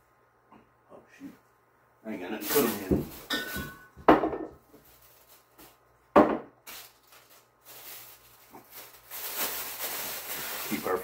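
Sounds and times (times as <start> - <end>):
plastic bag rustling: 2.2 - 4.0, 4.6 - 5.9, 6.6 - 11.0.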